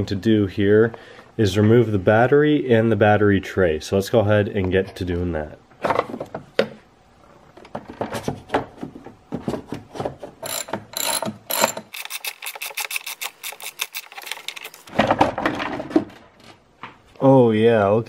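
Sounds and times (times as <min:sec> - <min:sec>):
socket ratchet clicking: 0:10.4 - 0:14.8.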